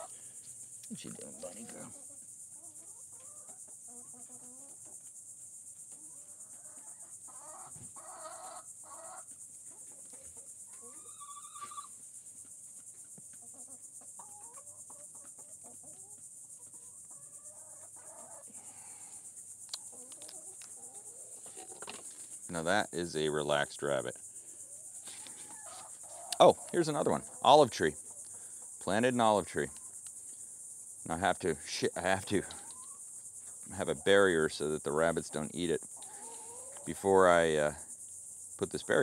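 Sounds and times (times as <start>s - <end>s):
chickens clucking: 0.0s - 38.0s, 38.6s - 39.0s
high-pitched insect drone: 17.3s - 39.0s.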